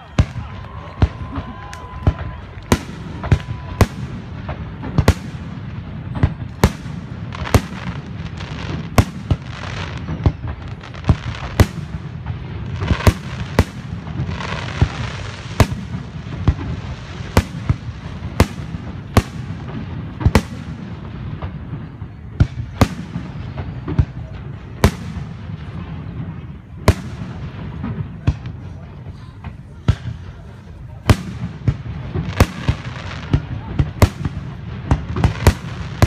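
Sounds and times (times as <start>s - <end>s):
fireworks crackling: 0.0s - 36.0s.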